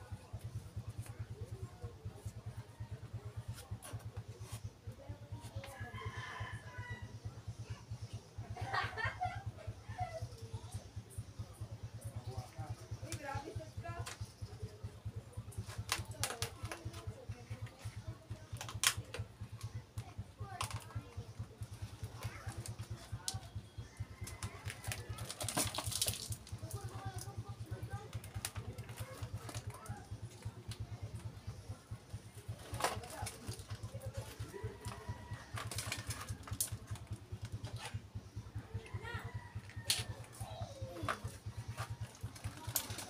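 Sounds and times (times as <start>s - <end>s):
plastic crackling: 15.5s - 19.6s, 24.2s - 31.3s, 32.2s - 38.0s, 41.0s - 43.0s
plastic pots clicking and scraping: 15.5s - 43.0s.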